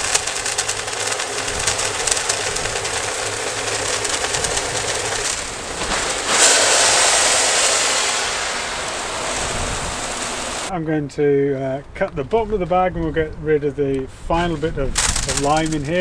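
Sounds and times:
pellets pouring into plastic hopper: 0:00.0 - 0:10.7, 0:14.9 - 0:16.0.

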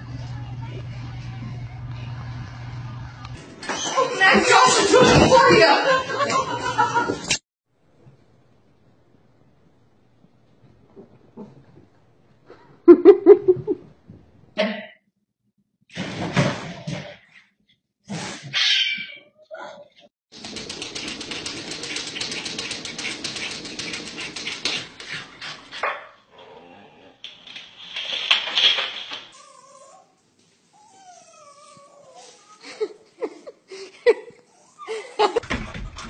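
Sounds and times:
fast scratchy rustling: 0:20.3 - 0:25.4.

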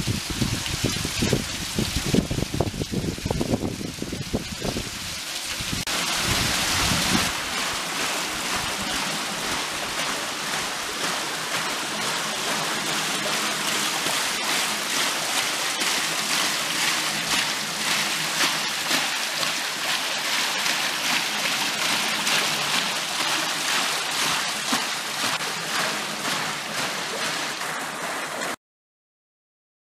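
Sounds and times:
water splashing on waterwheel: 0:00.0 - 0:28.6.

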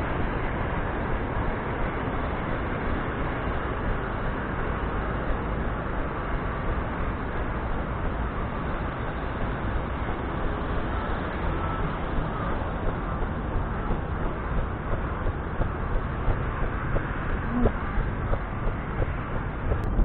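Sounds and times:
runner's stride bumps: 0:12.8 - 0:20.0.

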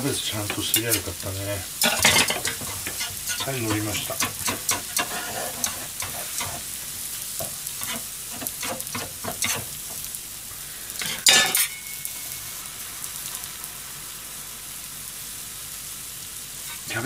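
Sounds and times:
food sizzling in a pan: 0:00.0 - 0:17.0
metal spatulas scraping a pan: 0:01.8 - 0:06.7, 0:07.8 - 0:09.7, 0:11.0 - 0:11.8.

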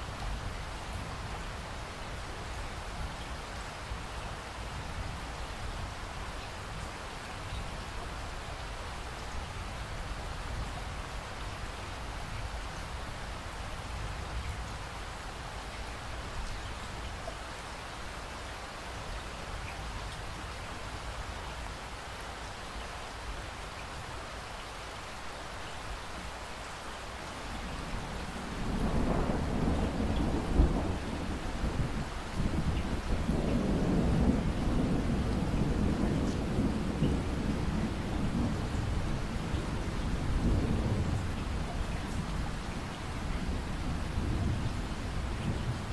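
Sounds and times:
rain falling: 0:00.0 - 0:45.9.

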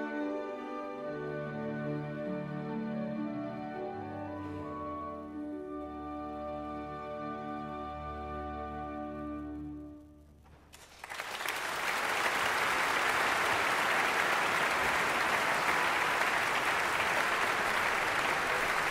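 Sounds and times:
audience applause: 0:10.8 - 0:18.9.

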